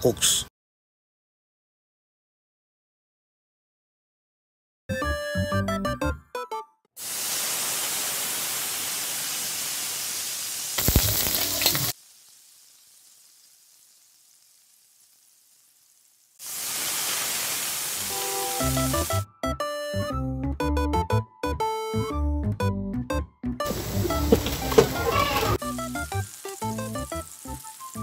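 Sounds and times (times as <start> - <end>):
food sizzling in hot oil: 7.0 - 19.2, 23.7 - 28.0.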